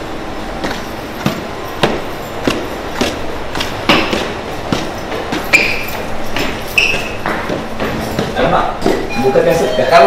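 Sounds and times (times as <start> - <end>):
footsteps climbing stairs: 0.0 - 10.0
short high squeak: 6.8 - 7.2.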